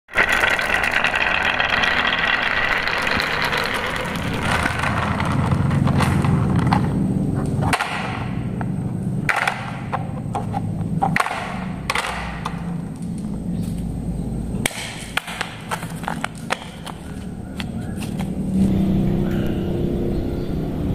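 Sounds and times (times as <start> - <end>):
marbles rattling down wooden track: 0.1 - 7.0, 9.3 - 13.3, 14.7 - 18.4
toys knocking and clicking: 0.1 - 7.0, 9.3 - 12.8, 14.7 - 18.4
low rumble: 0.2 - 20.9.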